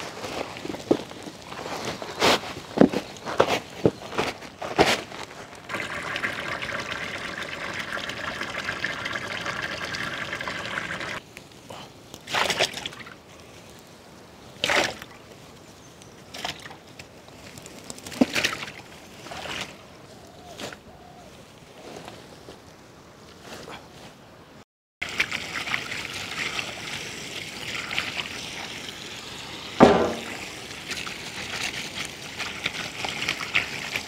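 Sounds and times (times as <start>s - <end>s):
carrots rustling and thudding: 0.0s - 5.5s, 29.8s - 30.4s
pouring hiss: 5.7s - 11.9s, 25.0s - 34.0s.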